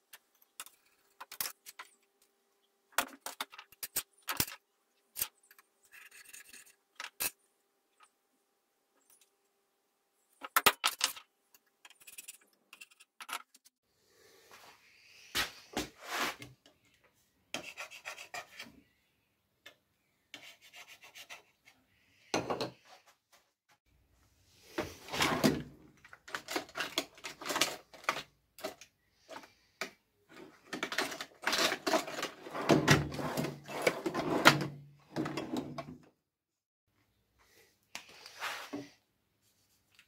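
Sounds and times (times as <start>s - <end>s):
metal drawers sliding: 30.8s - 35.9s.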